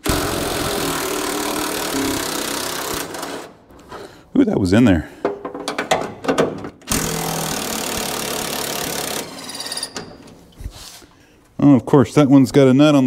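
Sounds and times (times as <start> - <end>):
impact driver running: 0.0 - 3.6, 6.9 - 9.5.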